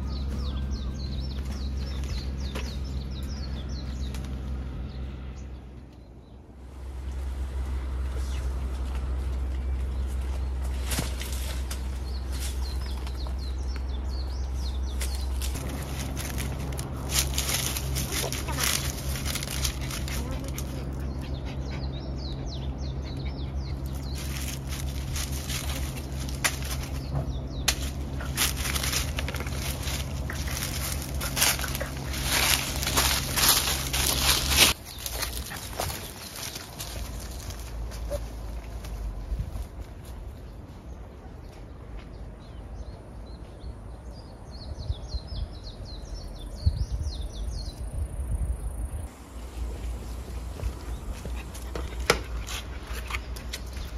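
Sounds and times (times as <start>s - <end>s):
bird chirping: 0.0s - 6.5s, 11.7s - 38.3s
steady low hum: 0.0s - 53.9s
rustling in dry leaves: 6.6s - 21.7s, 23.4s - 41.0s
wind rumble on microphone: 39.0s - 40.6s, 44.1s - 51.6s.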